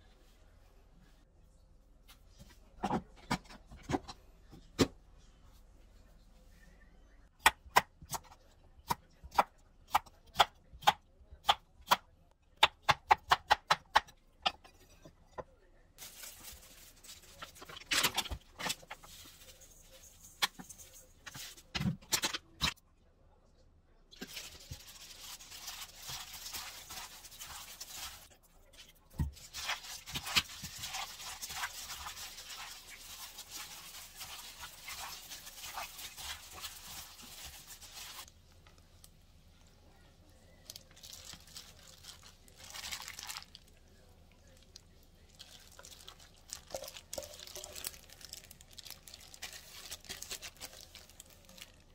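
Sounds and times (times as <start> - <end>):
gloved hand squelching food: 24.2 - 28.3, 29.3 - 38.3.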